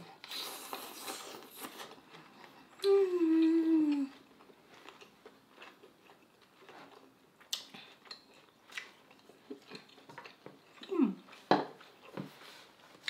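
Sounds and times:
faint chewing: 0.0 - 13.0
person humming with enjoyment: 2.8 - 4.2.

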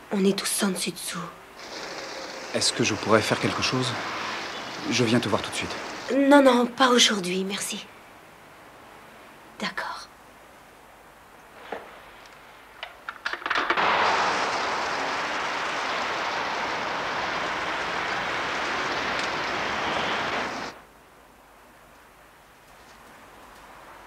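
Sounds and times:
heavy rain: 1.4 - 7.2, 13.4 - 20.8.

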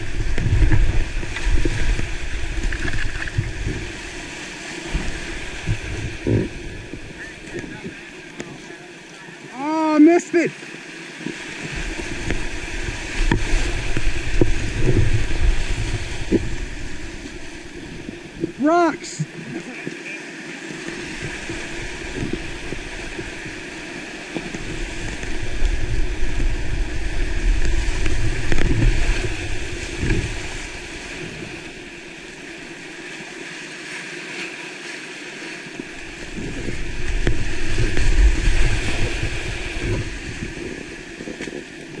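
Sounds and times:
low rumble on microphone: 0.0 - 8.1, 11.6 - 18.6, 24.4 - 31.8, 36.0 - 42.0
whitewater rapids rushing: 0.0 - 42.0.

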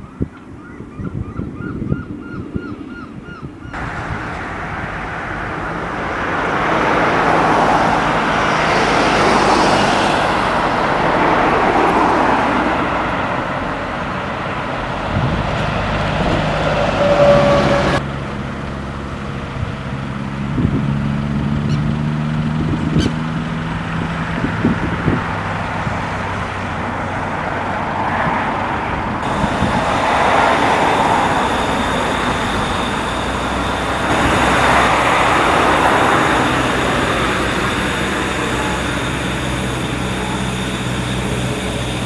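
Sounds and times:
steam hissing from locomotive: 29.2 - 42.0.

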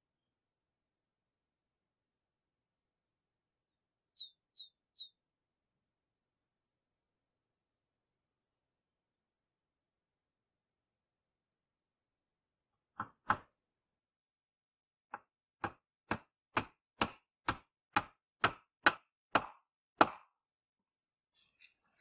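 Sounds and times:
hammer driving nail into wood: 13.0 - 13.5, 15.1 - 20.4.

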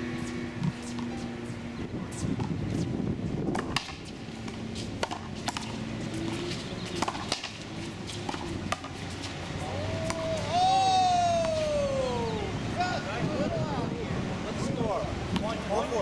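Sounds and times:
racquetball hits cracking: 3.4 - 9.4.

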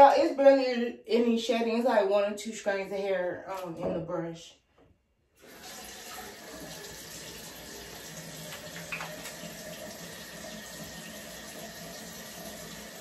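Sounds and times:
tap water running into sink: 5.4 - 13.0.

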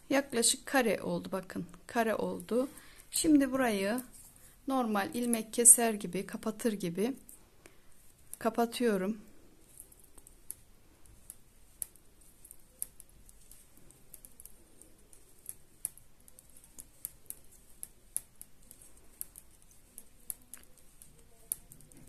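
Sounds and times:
metal knitting needles clicking: 5.0 - 22.0.

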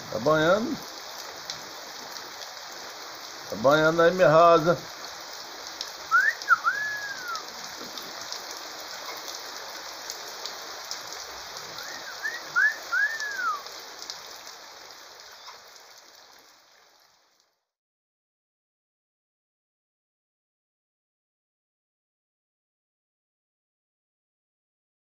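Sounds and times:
rain falling on a roof: 0.0 - 17.8
dripping and splashing: 4.8 - 17.0
bird whistled calls: 6.1 - 7.5, 11.8 - 13.7.

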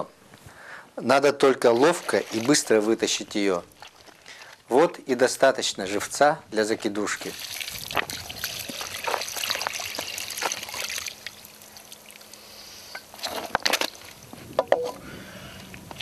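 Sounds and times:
water trickling and splashing: 1.6 - 4.8, 7.1 - 14.4.

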